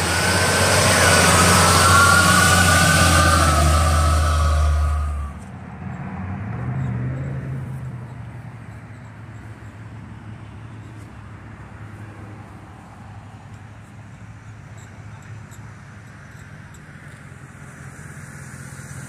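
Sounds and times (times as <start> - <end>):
bus engine whining: 0.0 - 5.9, 14.0 - 19.0
car engine running at low speed: 0.0 - 19.0.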